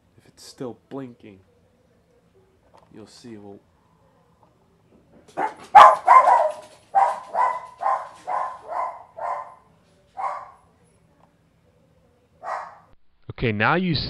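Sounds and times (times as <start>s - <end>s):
dog barking: 5.4s - 10.6s, 12.4s - 12.9s.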